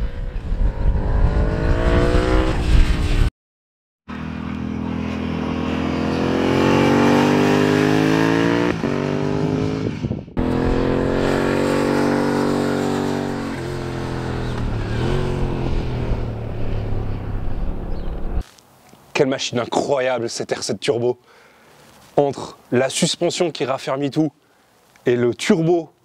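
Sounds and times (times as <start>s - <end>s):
motorcycle engine revving: 0.0s - 3.3s, 4.1s - 18.4s.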